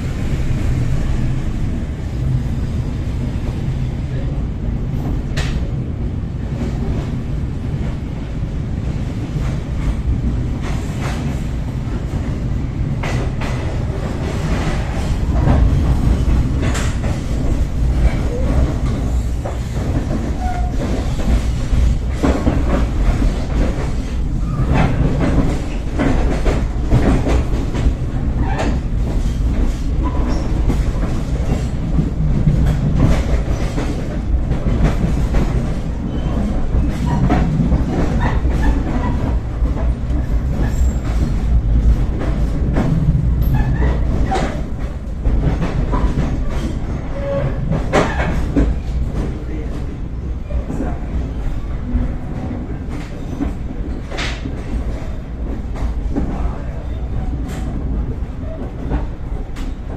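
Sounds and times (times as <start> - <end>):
train rumble from inside carriage: 0.0 - 59.9.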